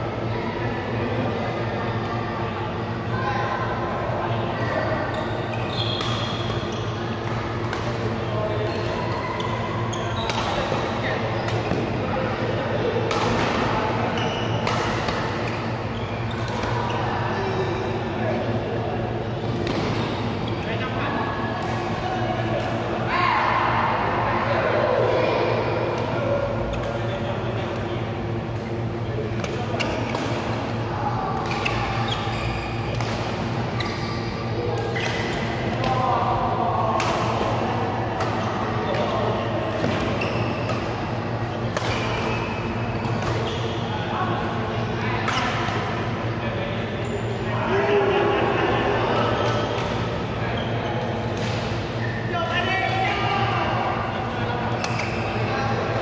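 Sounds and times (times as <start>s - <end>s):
echoing sports hall noise: 0.0s - 56.0s
rackets hitting shuttlecock: 14.6s - 15.4s, 37.0s - 37.6s, 41.7s - 42.3s
shoes squeaking on court floor: 33.7s - 35.5s, 38.4s - 40.7s, 42.2s - 43.9s.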